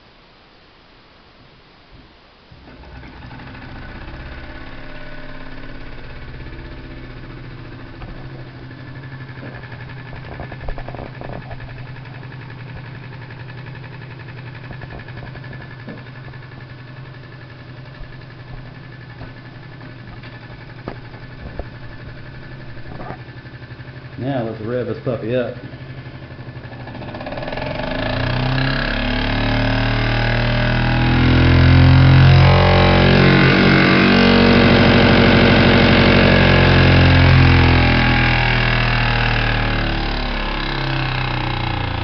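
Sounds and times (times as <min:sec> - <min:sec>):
sharp knocks: 0:14.6 - 0:16.8.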